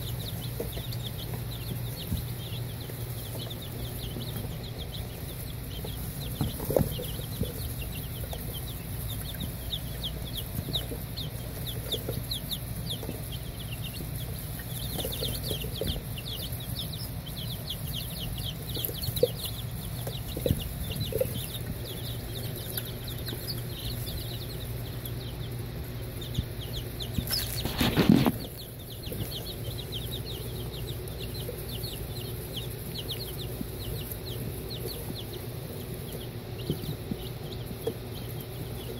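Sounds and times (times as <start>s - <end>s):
chicks peeping: 0.0s - 38.9s
low steady hum: 0.0s - 38.9s.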